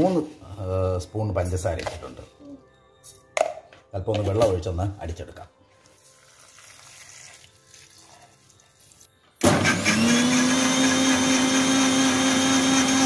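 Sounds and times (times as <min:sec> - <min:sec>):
water pouring into jar: 0:05.9 - 0:09.1
mixer grinder motor whine: 0:09.4 - 0:13.0.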